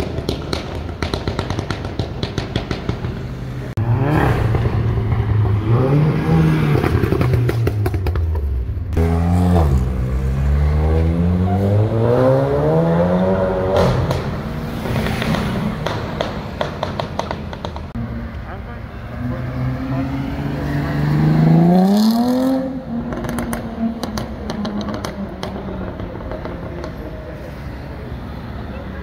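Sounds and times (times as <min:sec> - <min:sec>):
exhaust crackling and popping: 0:00.0 - 0:03.3, 0:06.8 - 0:09.0
car engine revving: 0:19.1 - 0:27.0.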